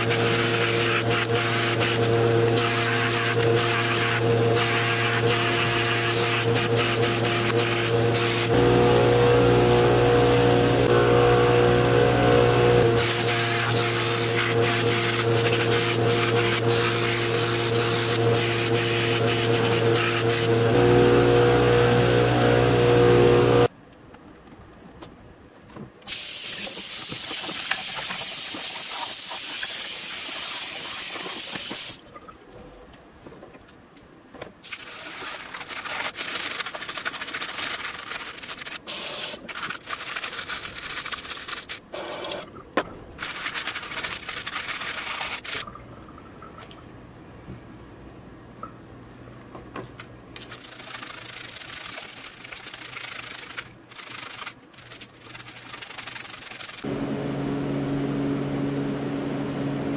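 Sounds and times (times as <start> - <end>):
buffing wheel motor hum: 0.7 - 23.7, 56.8 - 59.9
brush scrubbing in soapy water: 12.7 - 21.3, 34.7 - 42.4, 43.2 - 45.6, 50.5 - 56.9.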